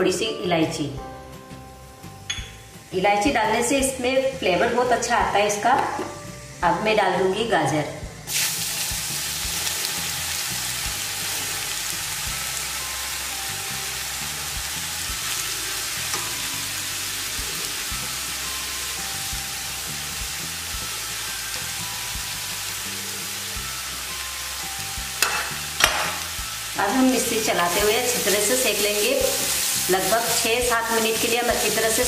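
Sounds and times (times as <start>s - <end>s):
faint background music: 0.0s - 32.0s
carrots sizzling in hot fat: 1.3s - 7.6s, 8.2s - 32.0s
spatula turning food: 27.2s - 32.0s.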